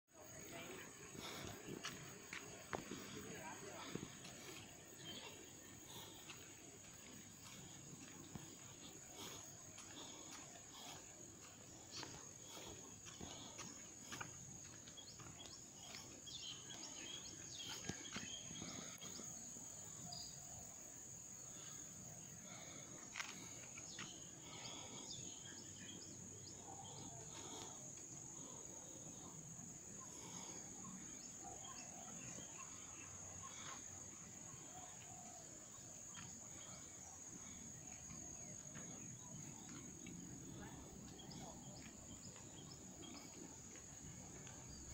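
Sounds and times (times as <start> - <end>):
insects droning: 0.1 - 44.9.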